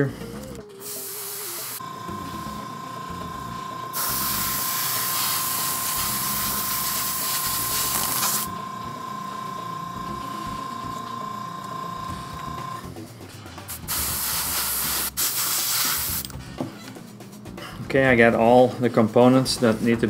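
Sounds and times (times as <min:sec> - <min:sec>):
steady high whine: 0:00.0 - 0:15.2
airbrush spraying hiss: 0:00.8 - 0:02.6, 0:03.9 - 0:08.5, 0:13.7 - 0:16.3.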